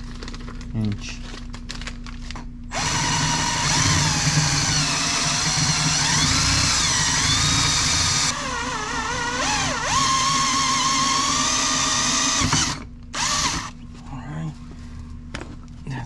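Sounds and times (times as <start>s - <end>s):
power drill drilling: 2.7s - 13.7s.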